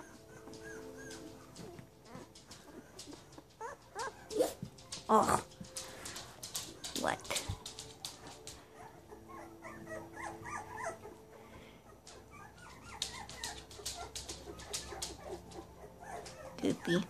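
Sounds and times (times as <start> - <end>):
puppy whimpering and yipping: 0.0 - 4.6, 8.7 - 17.0
light clicks and rustles: 0.0 - 8.8, 12.0 - 16.8.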